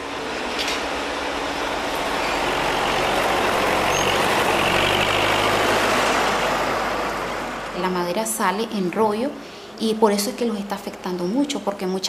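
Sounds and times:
heavy truck engine running: 0:00.0 - 0:08.7.

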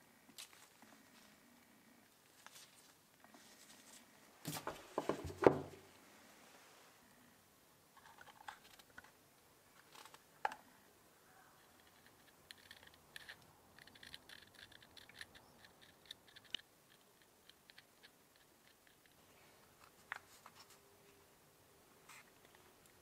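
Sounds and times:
plastic pieces clicking and crackling: 0:11.6 - 0:19.2.

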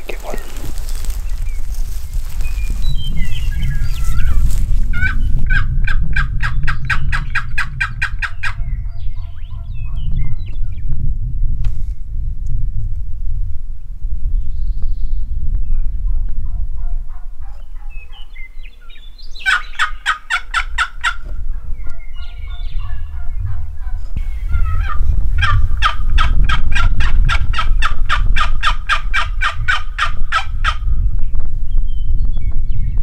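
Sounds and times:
low wind rumble on microphone: 0:00.0 - 0:33.0
turkey yelping: 0:19.4 - 0:21.2, 0:24.6 - 0:30.8.

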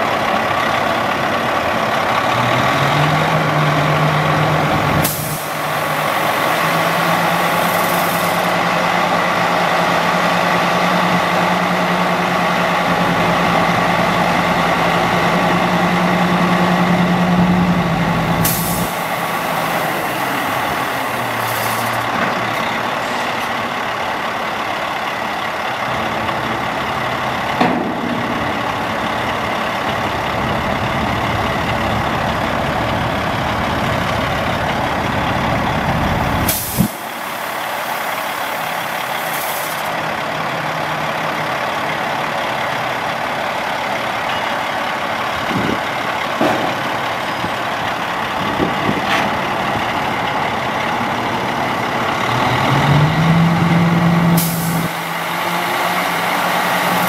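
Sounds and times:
diesel truck engine running: 0:00.0 - 0:57.0
air hiss: 0:05.0 - 0:06.5, 0:36.5 - 0:39.9
heavy low rumble: 0:22.1 - 0:36.5, 0:45.0 - 0:54.3.

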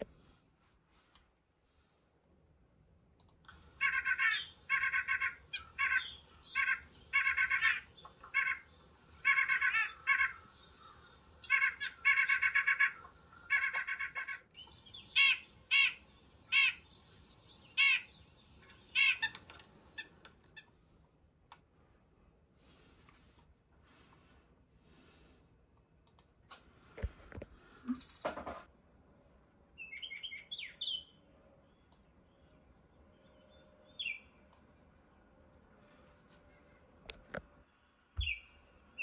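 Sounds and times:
nuthatch calling: 0:03.6 - 0:20.7, 0:29.8 - 0:31.2, 0:33.3 - 0:34.3, 0:38.2 - 0:39.0.

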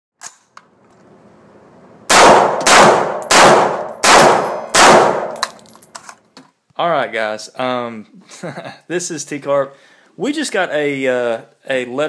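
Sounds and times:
rifle gunshots: 0:02.1 - 0:05.4.

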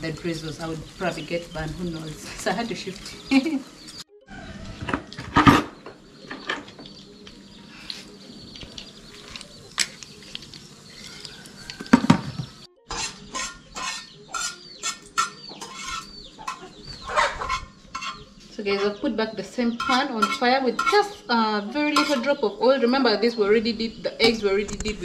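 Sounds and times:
oil sizzling: 0:00.0 - 0:04.0, 0:08.7 - 0:16.7
metal spatula scraping frying pan: 0:12.8 - 0:19.0, 0:19.7 - 0:21.2, 0:21.9 - 0:22.4.

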